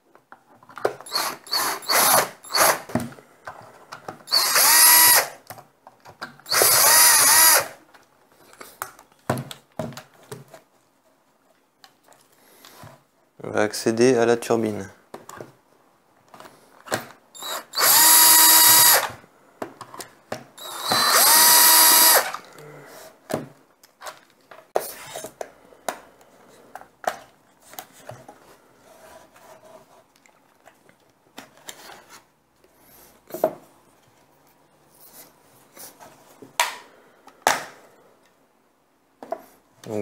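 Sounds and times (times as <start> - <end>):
cordless drill whine: 1.0 - 2.9, 4.3 - 5.4, 6.5 - 7.8, 17.4 - 19.2, 20.6 - 22.4.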